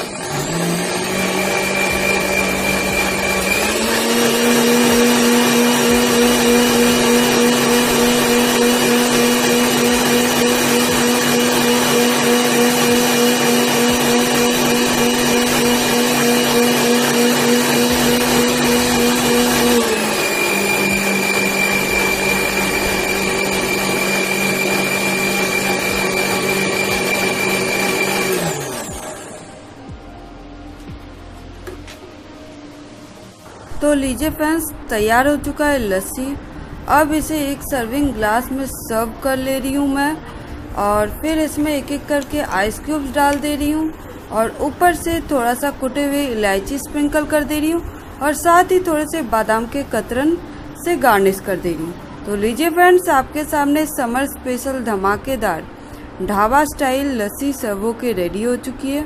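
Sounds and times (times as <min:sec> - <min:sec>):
electric mixer grinder motor whining: 0:00.0 - 0:29.6.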